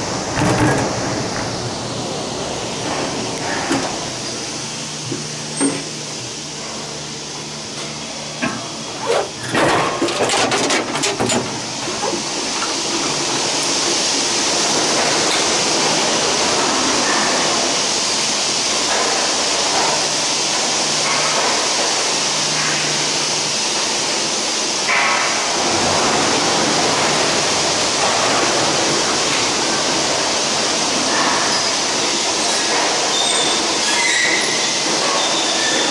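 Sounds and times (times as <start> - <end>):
gondola machinery rumble and hiss: 0.0 - 35.9
clanks and knocks: 8.4 - 13.1.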